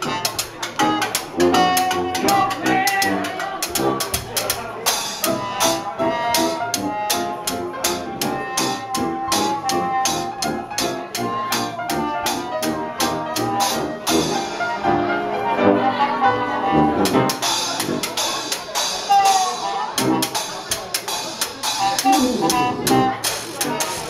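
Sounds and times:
brass horn: 0.0s - 4.3s, 5.3s - 18.4s, 19.1s - 20.6s, 21.7s - 24.0s
washboard and cymbal beat: 0.0s - 15.0s, 16.1s - 24.0s
piano: 0.0s - 24.0s
tuba: 0.0s - 24.0s.

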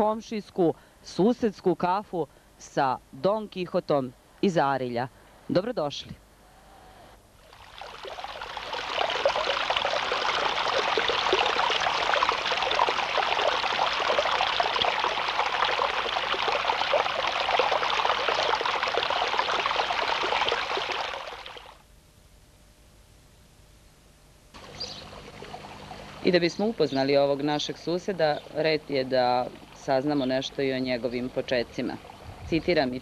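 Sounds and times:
stream water trickling over stones: 7.4s - 21.8s, 24.6s - 33.0s.

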